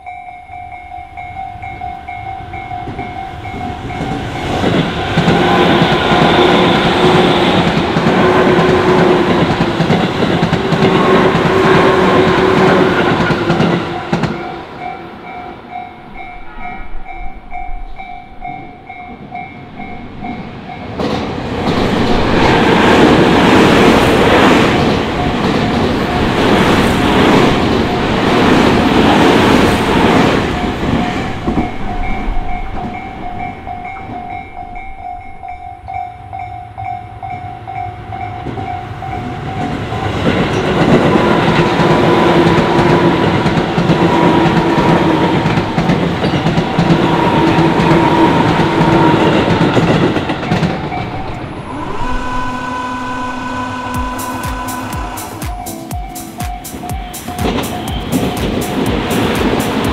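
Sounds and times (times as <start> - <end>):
level crossing warning alarm: 0.0 - 9.2, 23.7 - 40.3, 46.8 - 59.6
trains passing on rails: 0.0 - 59.9.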